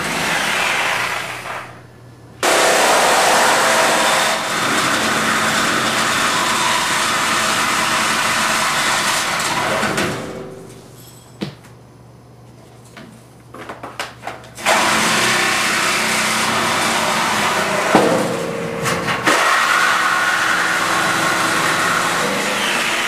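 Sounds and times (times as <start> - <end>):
reciprocating saw cutting metal: 0.0 - 1.8, 2.4 - 10.6, 14.6 - 23.0.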